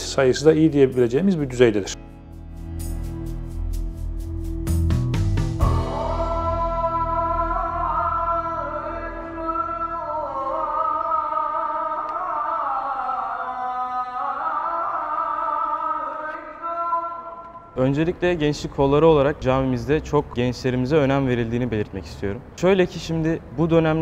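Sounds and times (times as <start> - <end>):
man chanting call to prayer: 8.4 - 24.0.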